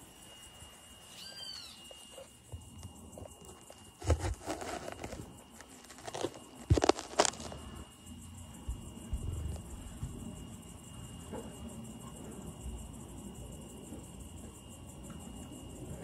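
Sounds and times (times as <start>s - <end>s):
high-pitched insect drone: 0.0s - 16.0s
phone handling rubbing and scraping: 4.0s - 7.6s.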